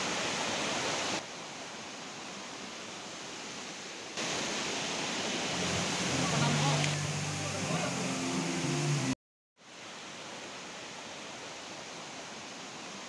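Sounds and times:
waterfall rushing: 0:03.9 - 0:13.0.

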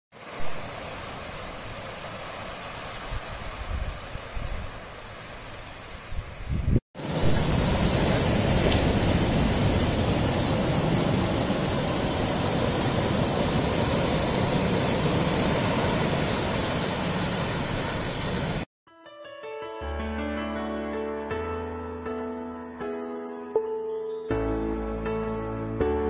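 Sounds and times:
surf breaking over rocks: 0:07.0 - 0:18.7.

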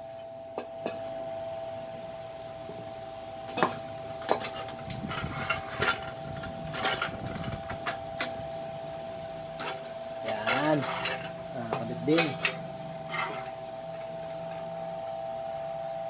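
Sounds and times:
high background hum: 0:00.0 - 0:16.0
metal pipes clinking together: 0:03.5 - 0:08.4, 0:09.6 - 0:13.6.

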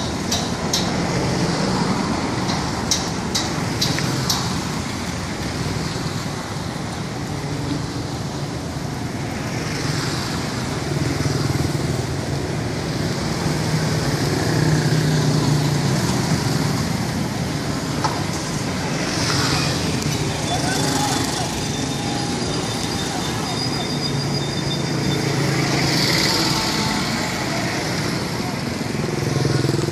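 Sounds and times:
steady road hum: 0:00.0 - 0:29.9
motorbikes passing close by: 0:25.2 - 0:29.9.

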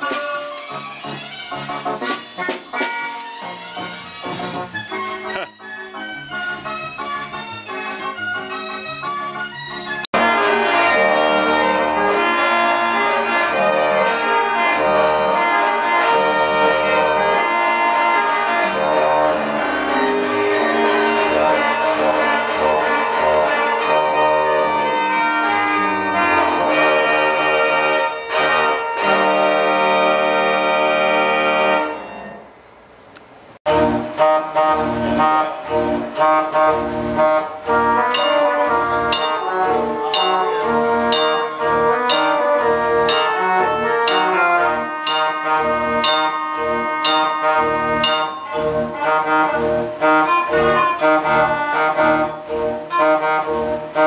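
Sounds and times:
band organ music: 0:00.0 - 0:32.6, 0:33.7 - 0:54.0
drum and cymbal strikes: 0:37.7 - 0:50.2.

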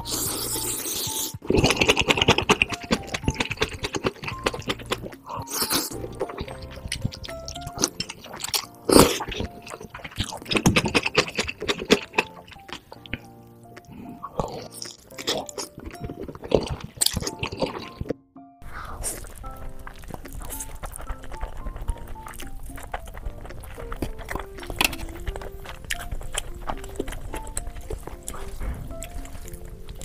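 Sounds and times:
person slurping noodles: 0:00.0 - 0:12.7, 0:18.6 - 0:22.6
background music: 0:00.0 - 0:30.0
wet mouth clicks: 0:00.0 - 0:30.0.

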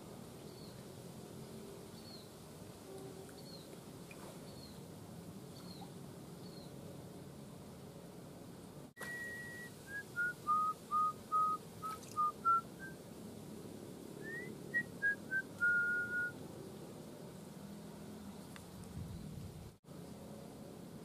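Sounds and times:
man whistling a tune: 0:09.0 - 0:13.0, 0:14.2 - 0:16.4.

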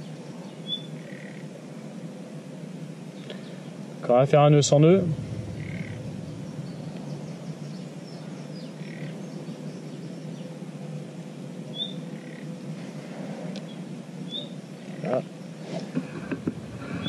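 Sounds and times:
steady low background noise: 0:00.0 - 0:17.0
birds chirping: 0:04.6 - 0:10.6.

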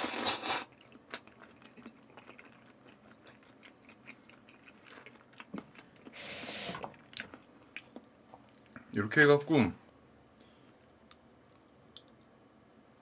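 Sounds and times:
wet chewing: 0:00.7 - 0:06.2.

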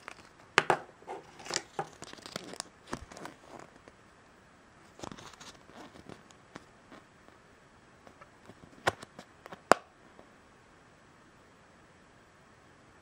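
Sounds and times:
paper rustling and clicking: 0:01.1 - 0:04.0, 0:04.9 - 0:06.7.

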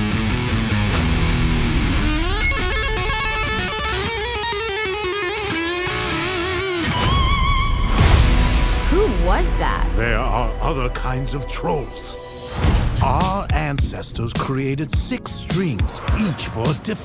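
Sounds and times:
heavy rock electric guitar: 0:00.0 - 0:08.6.

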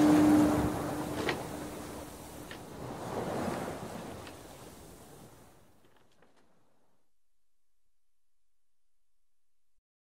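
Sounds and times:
low steady tone: 0:00.0 - 0:02.2
ocean waves: 0:00.0 - 0:06.9
wind: 0:00.0 - 0:07.2.

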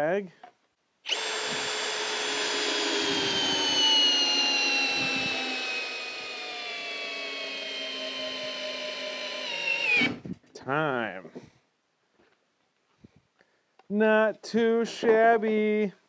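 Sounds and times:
hammer drill driving screw into wood: 0:01.1 - 0:10.3.

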